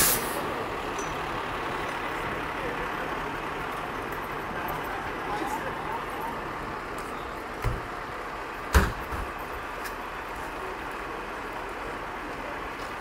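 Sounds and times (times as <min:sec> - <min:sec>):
truck rumbling: 0:00.0 - 0:13.0
truck door slammed shut: 0:08.7 - 0:09.2.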